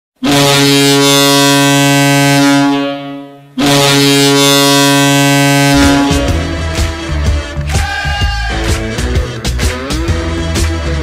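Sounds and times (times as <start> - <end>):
goal horn blasts: 0.2 - 7.0.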